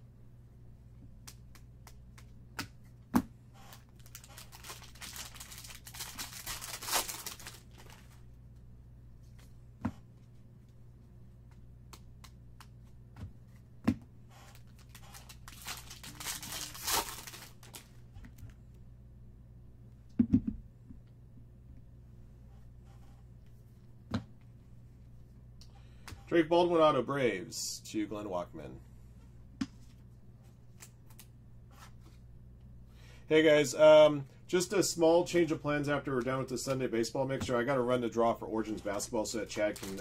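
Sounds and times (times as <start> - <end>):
wrapper tearing and rustling: 3.7 - 8.2, 14.6 - 17.9, 39.5 - 40.0.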